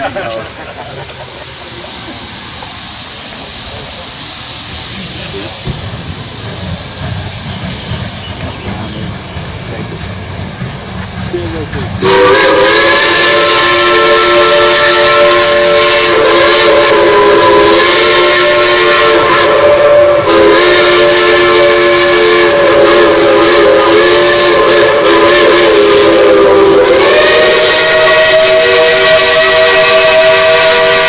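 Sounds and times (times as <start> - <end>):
steam hissing: 0.0 - 31.0
steam whistles chord: 6.6 - 31.0.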